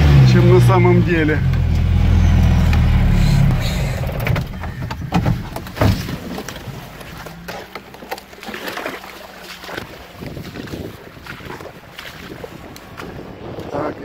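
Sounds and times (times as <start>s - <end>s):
loud engine noise: 0.0s - 5.0s
vehicle knocks and clunks: 1.5s - 8.5s.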